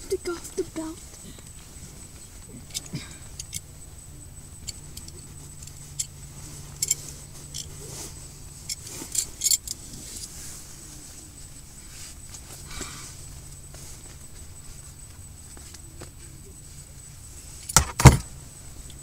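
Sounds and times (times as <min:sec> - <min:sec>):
steady low hum: 0:00.0 - 0:19.0
belt buckle jingling: 0:02.6 - 0:03.7, 0:04.4 - 0:07.7, 0:08.6 - 0:09.8.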